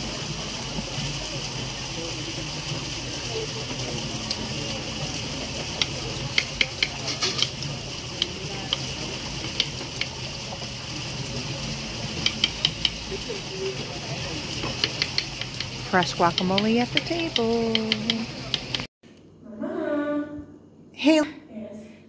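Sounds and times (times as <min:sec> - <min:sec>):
steady high hiss: 0:00.0 - 0:18.9
metal utensils clinking on a bowl: 0:05.8 - 0:07.6.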